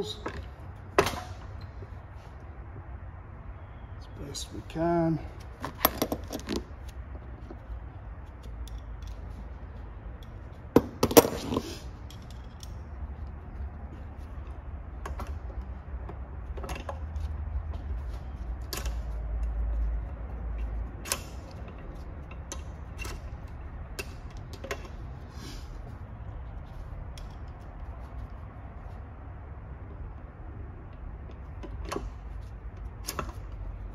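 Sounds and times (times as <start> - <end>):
small metal clicks and clinks: 8.4 - 9.3, 12.0 - 12.9.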